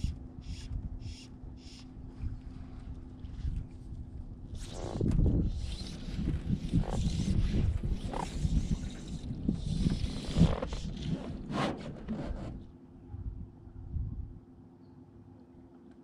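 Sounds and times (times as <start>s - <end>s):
wind buffeting microphone: 0.0s - 14.4s
faint steady hum: 0.0s - 16.0s.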